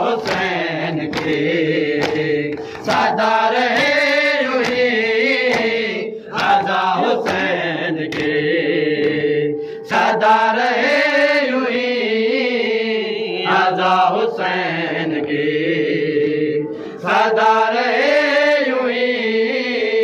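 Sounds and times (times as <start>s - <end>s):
men chanting a lament: 0.0s - 20.0s.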